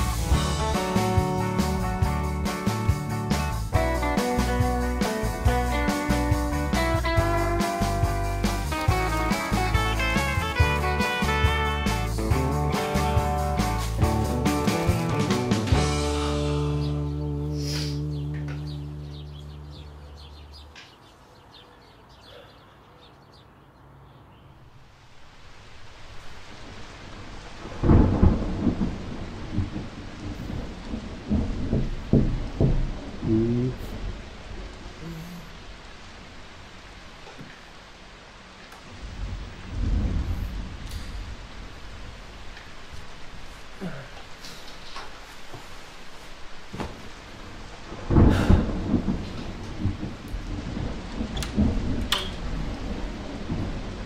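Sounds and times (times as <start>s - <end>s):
thunder rumbling: 0.0s - 17.0s, 25.5s - 37.1s, 38.8s - 44.4s, 46.6s - 54.0s
rain hiss: 0.0s - 22.5s, 24.5s - 54.0s.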